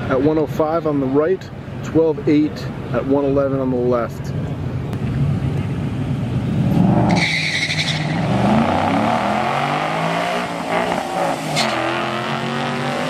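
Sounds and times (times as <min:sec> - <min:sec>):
car engine revving: 0:06.4 - 0:13.0
tires squealing: 0:06.8 - 0:13.0.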